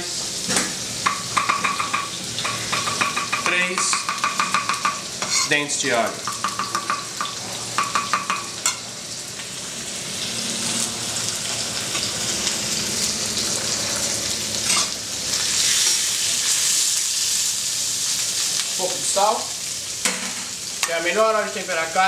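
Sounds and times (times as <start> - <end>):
meat sizzling in oil: 0.0 - 22.0
knife tapping on chopping board: 1.0 - 5.0, 6.3 - 8.5
spatula stirring in pan: 1.3 - 5.5.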